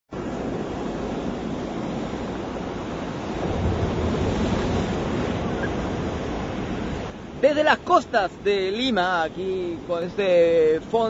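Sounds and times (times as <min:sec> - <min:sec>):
ocean surf washing ashore: 0:00.1 - 0:11.0
wind on microphone: 0:00.2 - 0:07.4.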